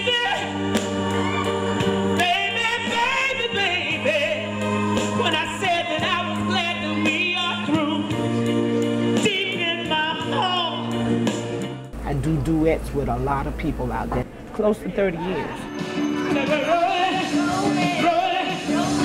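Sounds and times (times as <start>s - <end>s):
low accompaniment chords: 0.5s - 15.7s.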